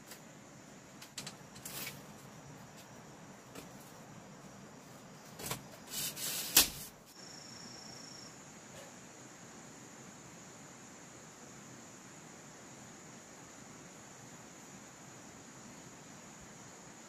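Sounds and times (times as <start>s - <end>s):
forest background: 0.0s - 17.0s
bamboo and leaves rustling: 1.0s - 4.1s.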